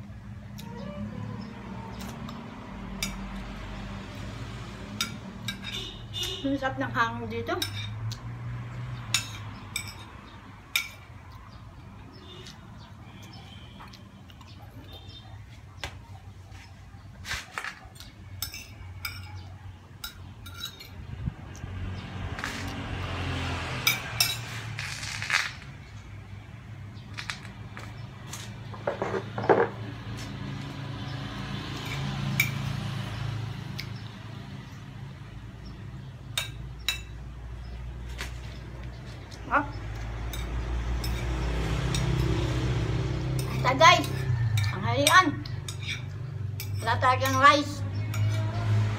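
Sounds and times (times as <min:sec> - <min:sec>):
cutlery scraping ceramic plate: 0:05.0 - 0:06.0, 0:28.8 - 0:29.8, 0:43.4 - 0:47.4
metal spoon clinking on ceramic plate: 0:18.0 - 0:19.4, 0:20.0 - 0:21.0, 0:43.4 - 0:48.4.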